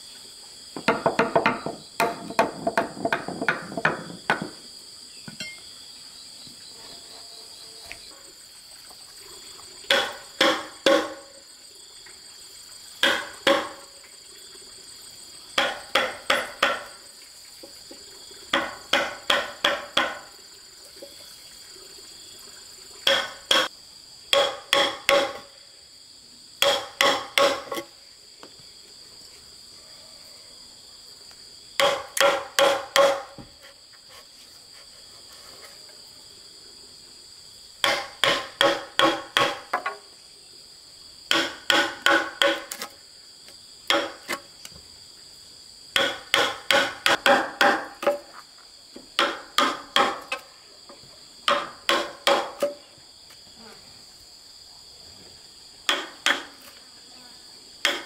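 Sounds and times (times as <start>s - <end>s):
high insect buzz: 0.0s - 58.0s
hammer striking chisel into wood: 0.8s - 4.6s, 15.6s - 16.9s, 18.5s - 20.2s, 24.3s - 25.4s, 26.6s - 27.8s, 31.8s - 33.4s, 37.8s - 39.9s, 46.0s - 47.9s, 51.5s - 52.8s.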